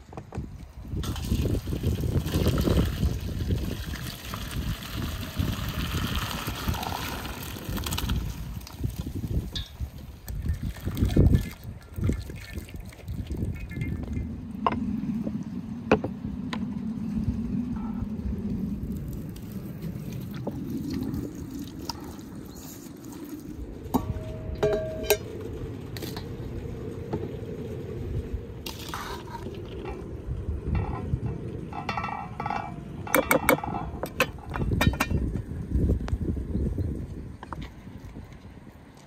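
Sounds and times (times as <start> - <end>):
water dripping and trickling: 1.0 - 14.4, 18.8 - 25.3.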